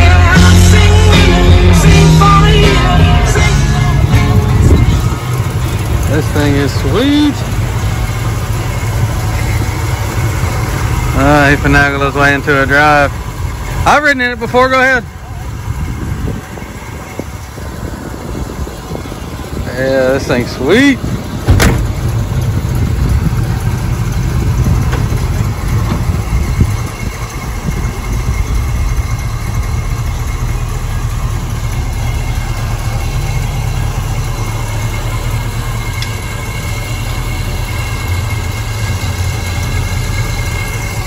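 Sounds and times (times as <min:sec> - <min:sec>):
car engine idling: 0:00.0 - 0:41.0
car door shutting: 0:21.4 - 0:22.1, 0:24.8 - 0:26.2.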